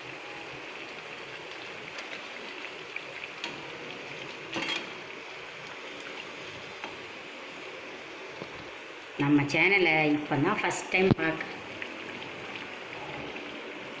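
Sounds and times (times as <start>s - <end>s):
oil sizzling and crackling: 0.0s - 14.0s
ladle moving through oil: 11.4s - 14.0s.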